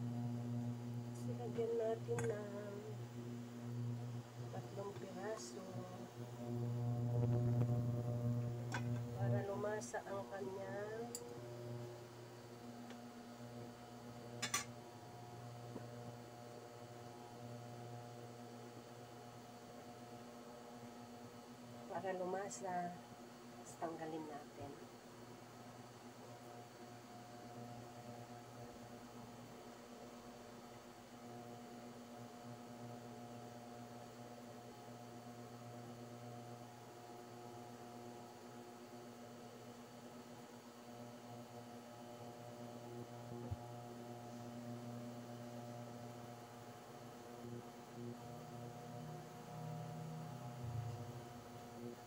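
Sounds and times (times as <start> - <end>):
induction cooktop humming: 0.0 - 52.0.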